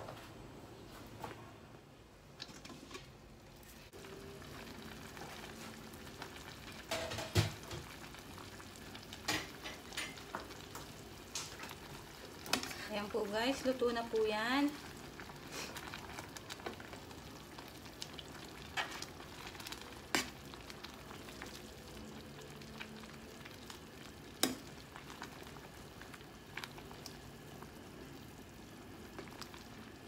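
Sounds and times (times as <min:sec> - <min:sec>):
simmering broth hiss: 0:13.7 - 0:19.9.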